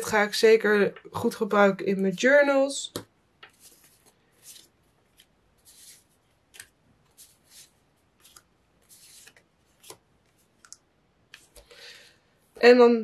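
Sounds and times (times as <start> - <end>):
paper cards rustling: 3.4 - 11.7.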